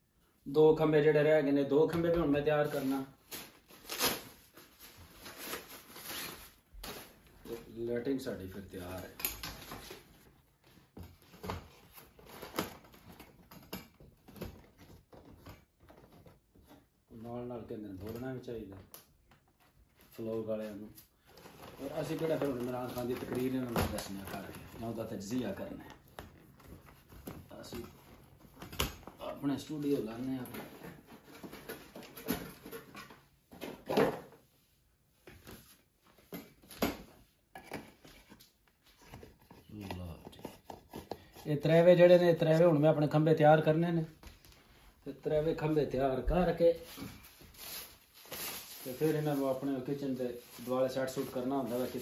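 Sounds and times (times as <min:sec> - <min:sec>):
cardboard rustling: 0:19.8 - 0:33.9, 0:45.6 - 0:52.0.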